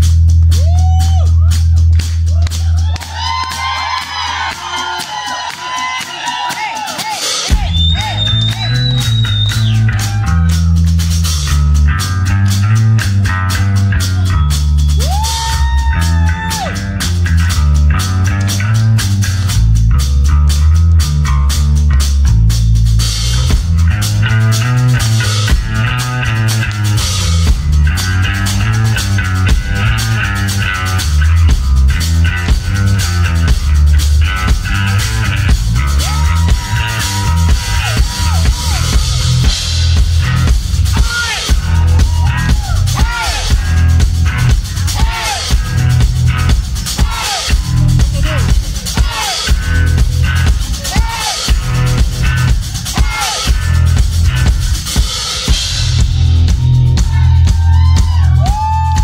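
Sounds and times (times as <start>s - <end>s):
electric bass guitar line: 0.0s - 4.5s, 7.4s - 59.0s
drum kit beat: 0.0s - 59.0s.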